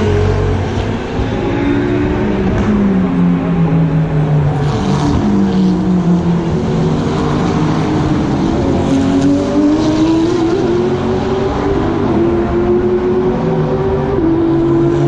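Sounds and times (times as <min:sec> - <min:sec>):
race car engine: 0:00.0 - 0:15.0.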